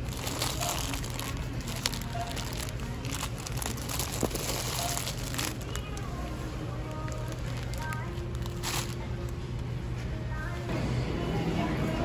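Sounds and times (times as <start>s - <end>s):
plastic bags crinkling: 0.0s - 9.3s.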